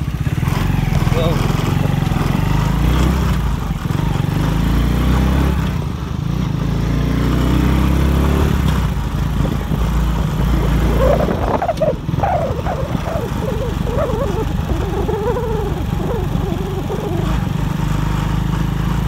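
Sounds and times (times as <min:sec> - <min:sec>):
motorcycle engine running: 0:00.0 - 0:19.0
dog barking: 0:10.9 - 0:17.4.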